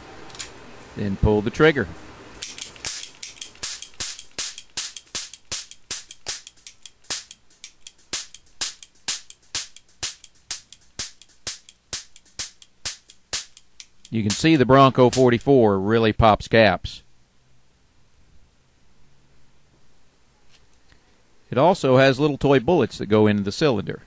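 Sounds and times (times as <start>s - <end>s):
cap gun pops: 2.4s - 15.4s.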